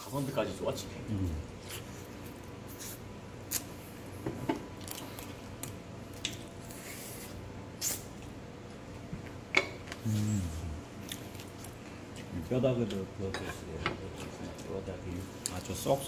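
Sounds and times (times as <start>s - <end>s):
short low voice: 10.0s - 10.9s.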